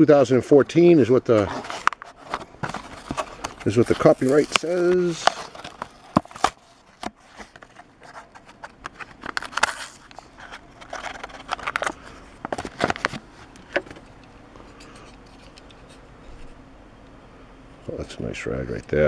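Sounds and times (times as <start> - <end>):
plastic packaging tearing: 1.4 - 13.2.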